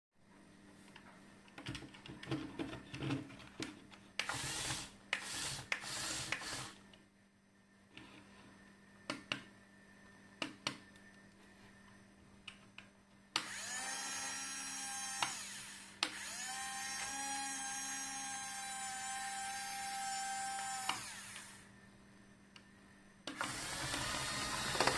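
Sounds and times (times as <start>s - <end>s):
electric gear motors whining: 4.2s - 6.8s, 13.4s - 21.7s, 23.3s - 24.9s.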